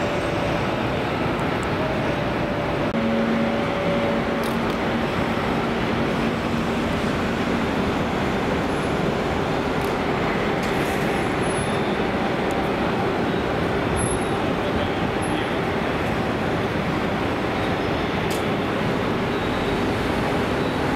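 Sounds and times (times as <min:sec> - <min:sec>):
jet engines running at low power: 0:00.0 - 0:20.9.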